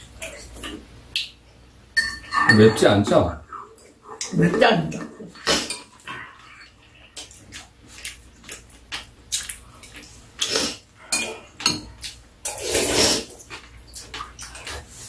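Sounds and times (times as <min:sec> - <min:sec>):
utensils clinking on ceramic bowls: 0:02.0 - 0:03.2
wet eating noises: 0:03.4 - 0:15.0
slurping stew: 0:09.6 - 0:15.0.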